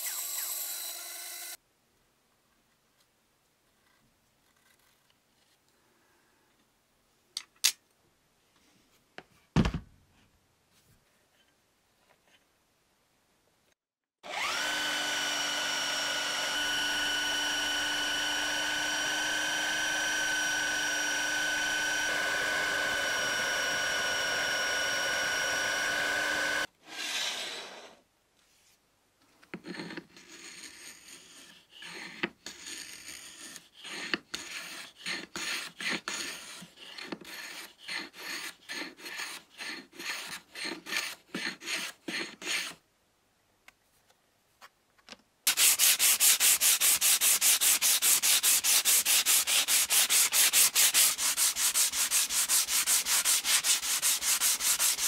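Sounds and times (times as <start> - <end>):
electric power tool whining: 0.0 - 1.6, 14.2 - 28.0
sandpaper sanding wood: 45.5 - 55.0.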